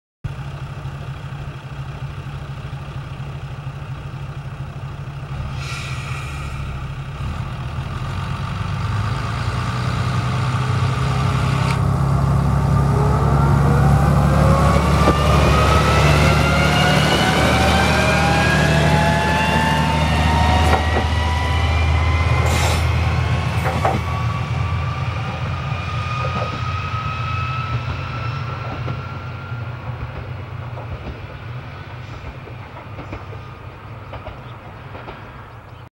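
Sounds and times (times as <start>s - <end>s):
diesel railcar engine: 0.3s - 35.9s
air hiss: 5.5s - 6.8s.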